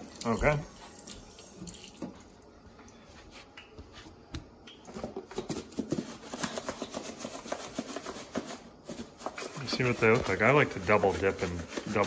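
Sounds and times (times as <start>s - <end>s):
container shaken with rattling knocks: 5.0s - 12.0s.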